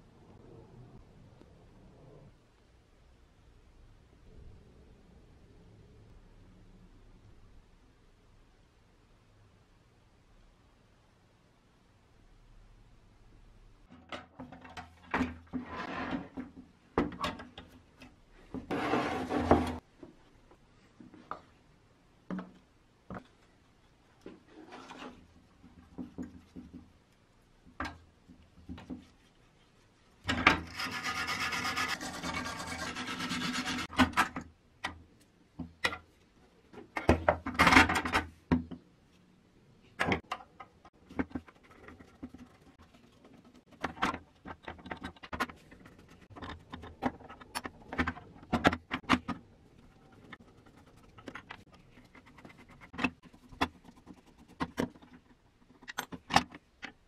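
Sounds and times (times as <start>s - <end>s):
metal scraping and rubbing: 18.7s - 19.8s, 30.3s - 33.9s.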